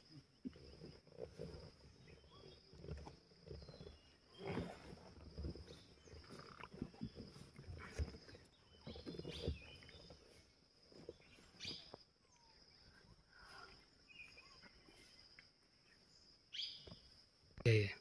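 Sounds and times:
bird chirps: 0:11.0 - 0:17.1.

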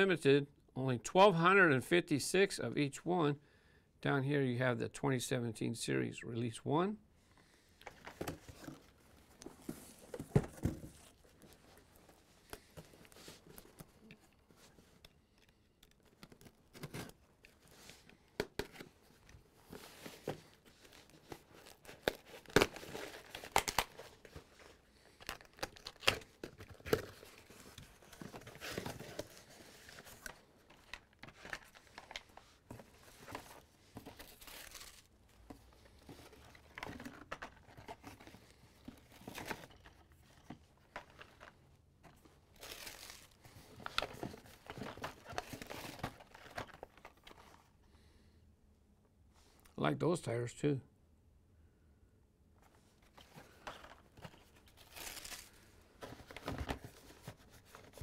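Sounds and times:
packing paper crinkling: 0:19.7 - 0:41.6, 0:42.5 - 0:47.7, 0:53.2 - 0:58.0.

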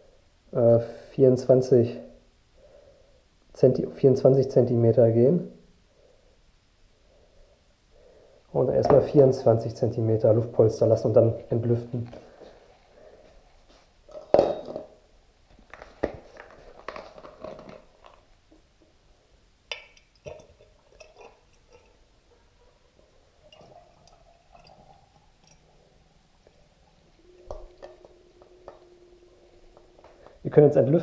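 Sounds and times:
plastic bottle crinkling and knocking: 0:15.5 - 0:18.7
oil pouring through a funnel: 0:19.8 - 0:22.2, 0:23.1 - 0:30.4.

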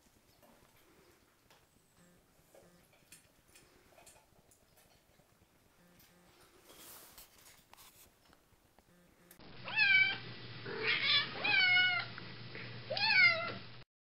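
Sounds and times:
steady low hum: 0:00.9 - 0:04.0, 0:08.7 - 0:13.0
cat meowing: 0:09.6 - 0:10.2, 0:10.8 - 0:12.1, 0:12.9 - 0:13.6.

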